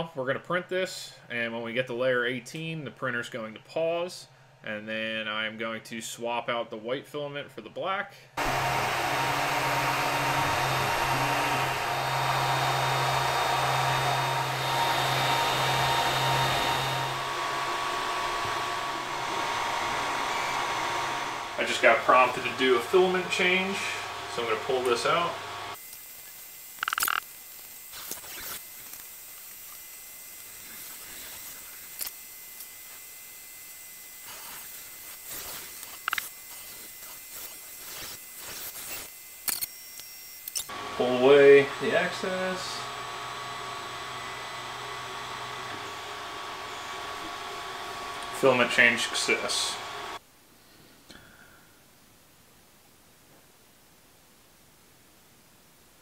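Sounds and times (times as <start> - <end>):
cooling fans whirring: 8.4 - 37.0, 40.4 - 50.2
stepper motors humming: 8.4 - 50.2
quiet steady hiss: 50.2 - 56.0.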